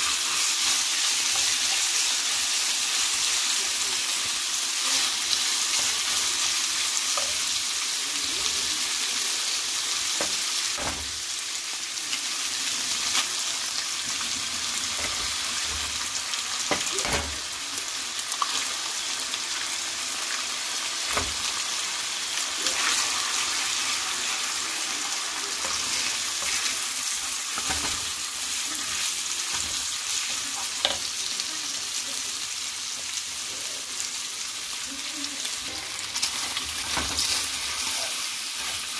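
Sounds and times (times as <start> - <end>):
meat sizzling in skillet: 0.0 - 38.9.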